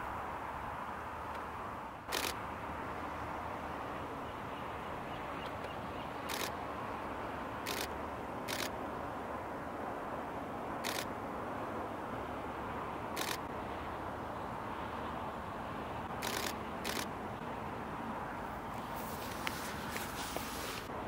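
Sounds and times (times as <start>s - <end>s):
steady background hiss: 0.0s - 21.0s
camera shutter clicks: 2.1s - 2.4s, 6.3s - 6.6s, 7.6s - 7.9s, 8.5s - 8.7s, 10.8s - 11.1s, 13.2s - 13.4s, 16.2s - 17.1s.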